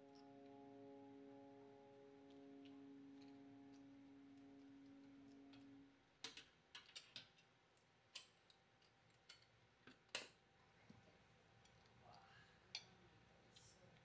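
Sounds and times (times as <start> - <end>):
soft background music: 0.0 - 6.0.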